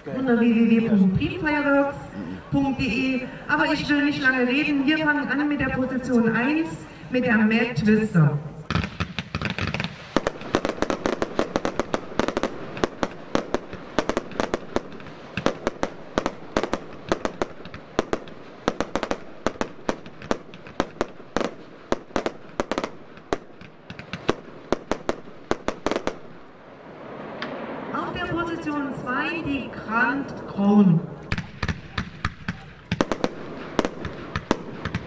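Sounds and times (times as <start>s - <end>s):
firework battery bangs: 31.2s - 35.0s.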